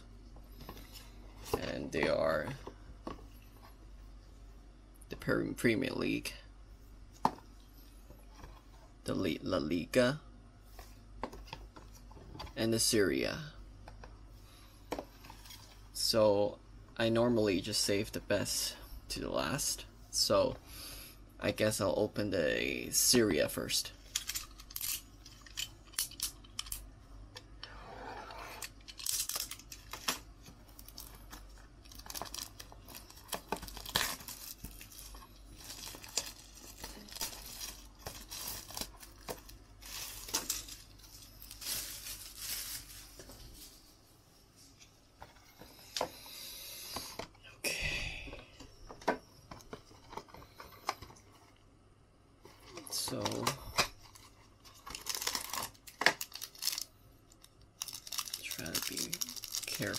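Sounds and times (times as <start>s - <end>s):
plastic wrap tearing and crinkling: 24.1s - 26.8s, 28.6s - 43.9s, 53.1s - 59.9s.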